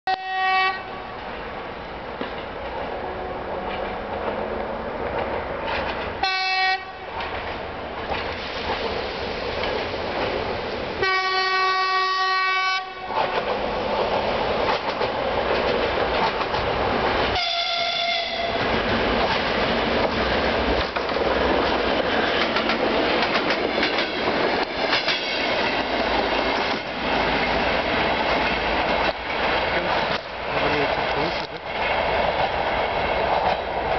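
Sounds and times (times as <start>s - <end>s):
locomotive horn blast: 0.1s - 1.2s, 6.2s - 7.1s, 11.0s - 13.2s, 17.4s - 18.7s
train wheels clattering over rail joints: 5.0s - 6.2s, 13.1s - 17.4s, 18.6s - 30.4s.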